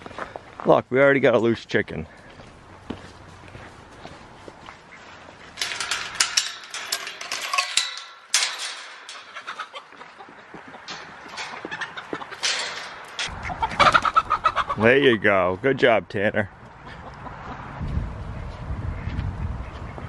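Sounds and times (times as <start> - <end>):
chickens clucking and squawking: 9.1 - 15.2, 16.6 - 17.8.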